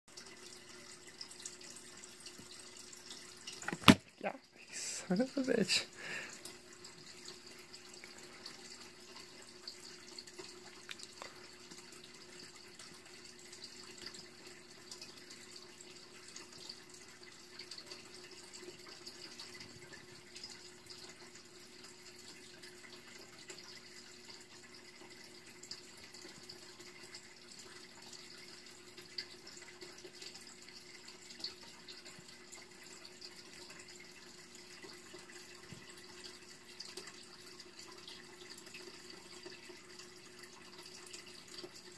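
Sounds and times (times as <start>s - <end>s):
faint background hum and hiss: 0.1s - 41.9s.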